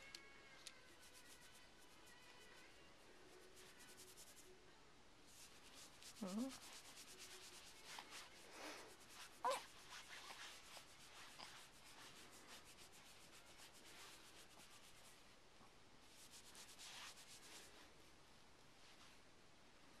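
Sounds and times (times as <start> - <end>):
fabric rubbing and rustling: 5.3 - 15.4, 16.0 - 17.9.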